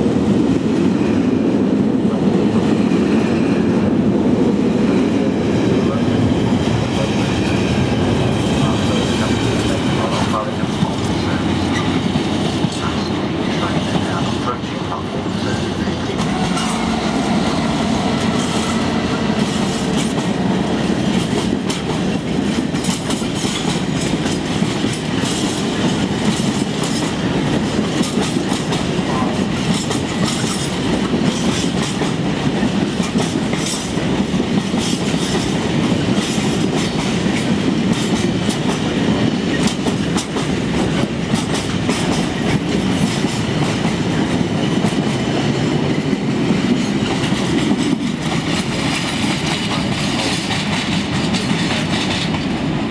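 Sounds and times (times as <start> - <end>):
freight train rumble: 0.0 - 52.9
wheels clacking over rail joints: 16.1 - 52.6.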